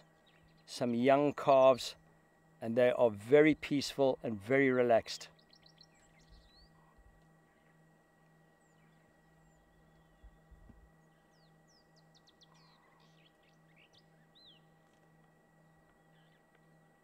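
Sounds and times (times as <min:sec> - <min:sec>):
faint bird chirps: 0:00.0 - 0:01.5, 0:05.0 - 0:17.0
faint electrical hum: 0:00.0 - 0:17.0.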